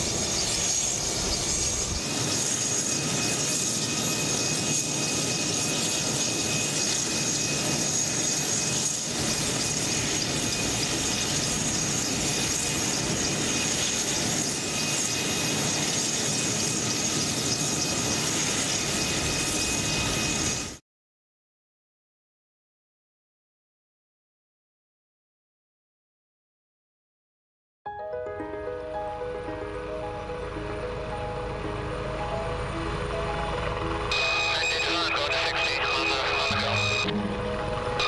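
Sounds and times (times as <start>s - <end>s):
helicopter turbine whine: 0.0s - 20.8s, 28.6s - 38.0s
rotor and propeller rush: 31.8s - 38.0s.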